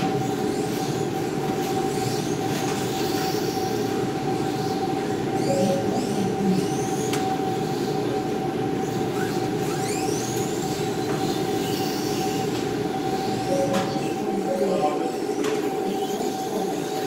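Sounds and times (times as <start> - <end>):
constant hum: 0.0 - 17.0
electric rc cars whining: 8.8 - 10.9.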